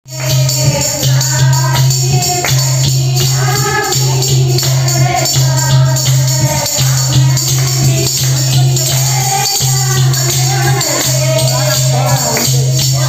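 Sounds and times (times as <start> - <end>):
jingling percussion: 0.1 - 13.0
women singing together: 0.1 - 13.0.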